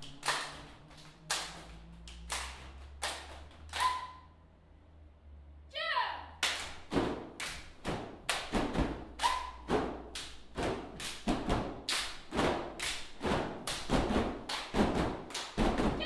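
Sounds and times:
person shouting: 5.7 - 6.3.

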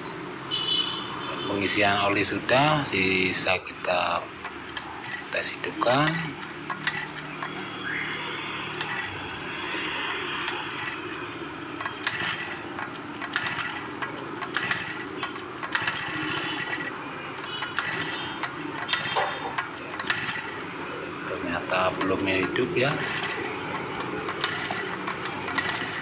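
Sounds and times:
starter clicks and knocks: 3.8 - 7.8, 8.7 - 20.7, 21.6 - 26.0.

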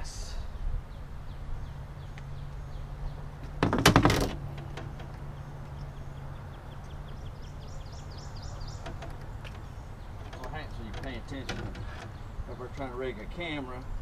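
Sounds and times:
bird chirping: 0.0 - 3.6, 4.4 - 14.0
knocks and rattles on metal boat: 3.5 - 5.3, 8.6 - 12.8.

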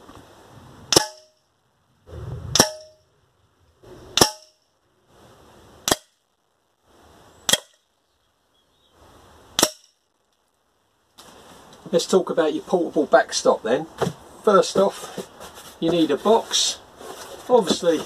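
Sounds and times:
pellets striking steel catcher: 0.9 - 1.4, 2.5 - 3.0, 4.2 - 4.6
air rifle shots: 2.5 - 3.0, 4.1 - 4.6.

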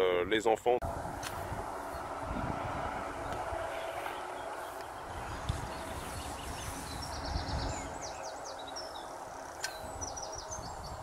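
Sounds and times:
low outdoor rumble: 0.8 - 11.0
songbird chirping: 3.0 - 11.0
sharp click: 9.6 - 9.9.

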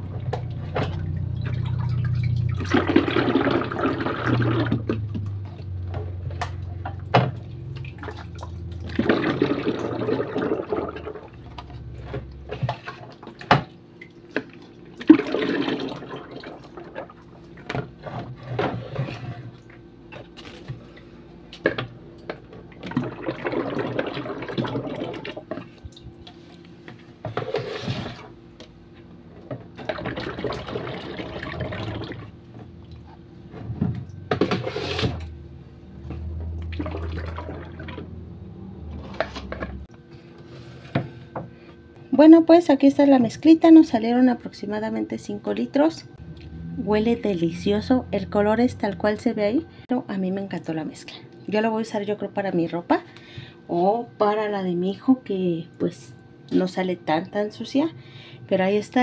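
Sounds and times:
liquid soap pouring and splashing: 0.0 - 5.4, 7.2 - 13.5, 14.2 - 17.3, 22.8 - 25.8, 29.8 - 32.4, 36.6 - 38.2.

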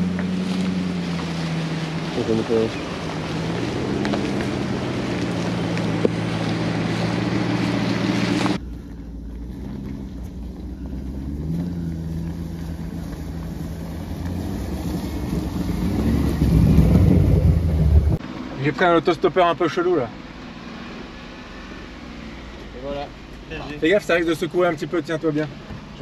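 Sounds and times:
vehicle engine passing close by: 0.0 - 18.6
off-road engines at low speed: 0.0 - 26.0.

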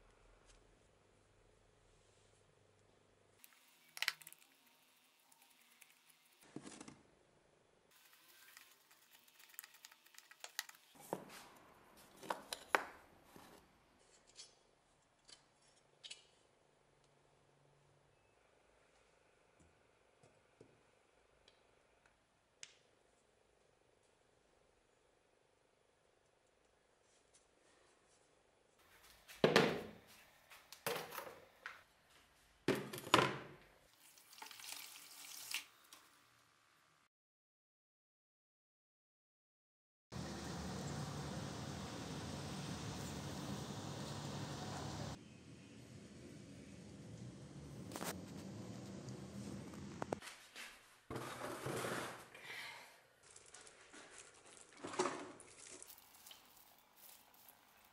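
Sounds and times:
liquid pouring and splashing: 3.4 - 6.4, 8.0 - 11.0, 33.9 - 35.9, 53.2 - 57.9.

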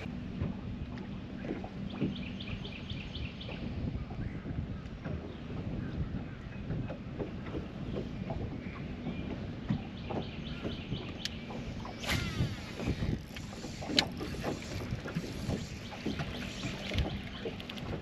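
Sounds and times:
water slapping a boat hull: 0.0 - 18.0
wind on microphone: 0.0 - 18.0.

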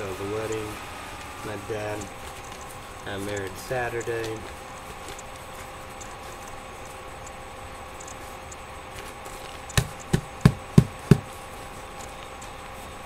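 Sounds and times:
steady background hum: 0.0 - 13.0
sharp knocks: 9.8 - 11.3.

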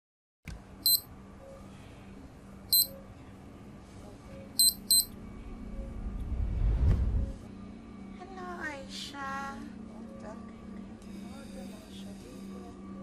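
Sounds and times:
steady low hum: 0.6 - 13.0
high electronic beeps: 2.7 - 2.9, 4.6 - 5.1
low rumble: 5.0 - 8.2.

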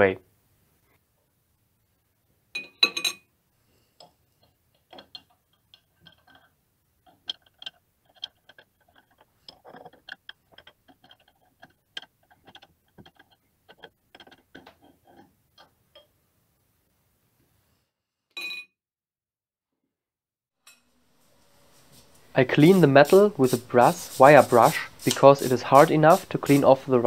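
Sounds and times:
metal clinking against glass and ceramic: 2.6 - 3.3.

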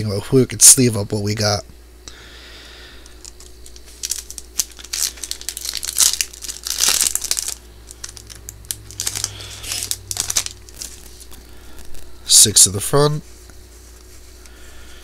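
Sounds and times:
foil wrapper crinkling: 3.0 - 12.2.

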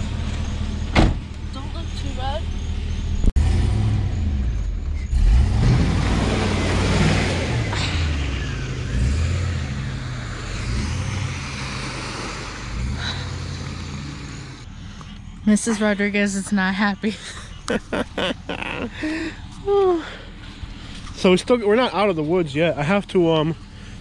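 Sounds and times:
pickup truck engine revving: 2.6 - 14.8, 17.2 - 19.4.

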